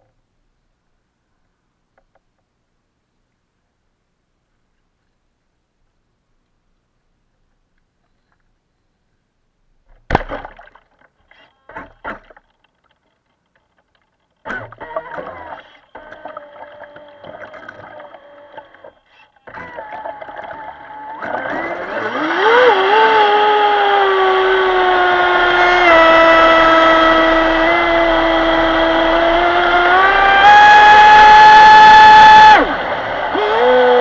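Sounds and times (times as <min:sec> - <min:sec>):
electric motor whining: 0:14.5 - 0:34.0.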